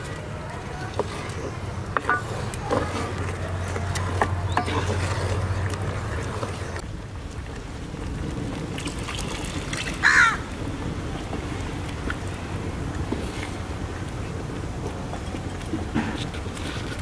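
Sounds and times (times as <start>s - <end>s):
wooden spatula scraping pot: 0.6s - 6.8s.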